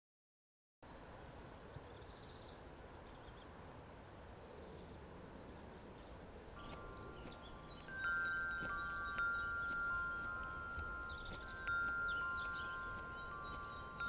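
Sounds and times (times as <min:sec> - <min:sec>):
faint outdoor background noise: 0:00.8 - 0:14.0
wind chime ringing: 0:06.6 - 0:14.0.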